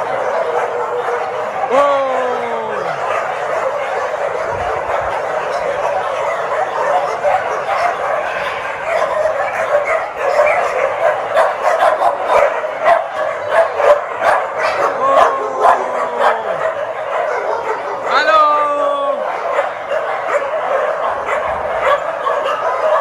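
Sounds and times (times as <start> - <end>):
dogs barking: 0.0 - 23.0
dog whining cry: 12.3 - 23.0.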